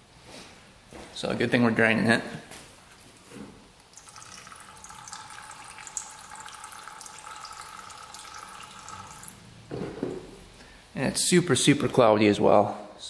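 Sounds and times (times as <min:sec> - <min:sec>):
liquid pouring into plastic pan: 0:03.8 - 0:09.4.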